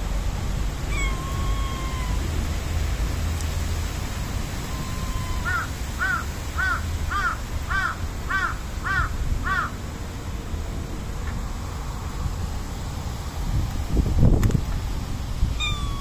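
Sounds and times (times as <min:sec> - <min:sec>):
crow cawing: 0:04.8 - 0:09.7.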